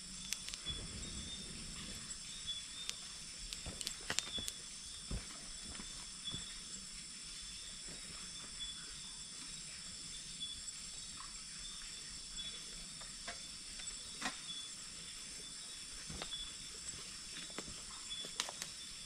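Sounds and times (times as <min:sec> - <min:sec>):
night insects chirping: 0:00.0 - 0:19.0
sharp snaps and crackles: 0:00.1 - 0:06.5, 0:17.3 - 0:18.8.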